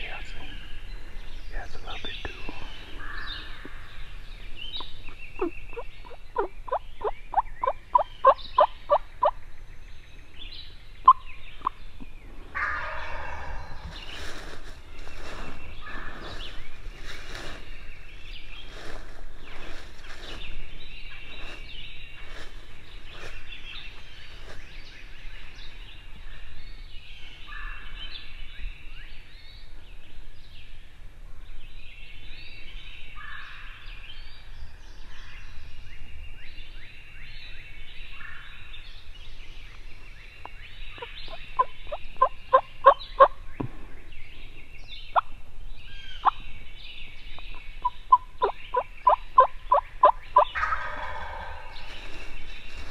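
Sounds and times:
songbirds singing: 0:00.0 - 0:52.9
turkey gobbling: 0:04.8 - 0:09.4, 0:41.0 - 0:43.4, 0:47.8 - 0:51.7.

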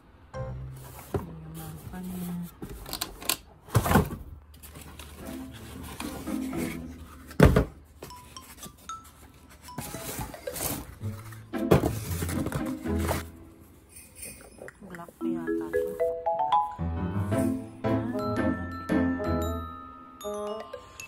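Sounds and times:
background music: 0:00.3 - 0:01.0, 0:05.2 - 0:07.3, 0:09.8 - 0:13.8, 0:15.2 - 0:21.0
cardboard box and foam handling: 0:03.8 - 0:13.3.

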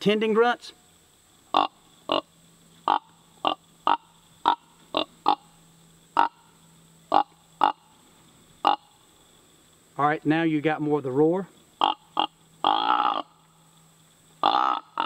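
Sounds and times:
deer grunt call: 0:11.8 - 0:13.4, 0:14.4 - 0:15.0.

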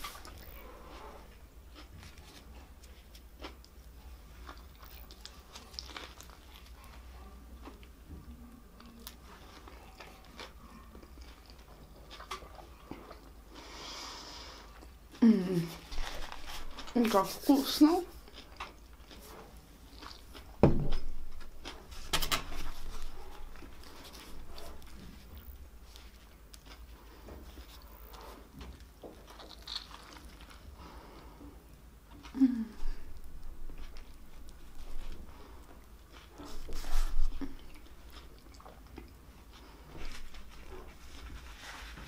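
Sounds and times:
chewing with crunching crackles: 0:00.0 - 0:42.0
low thump: 0:20.6 - 0:21.0.

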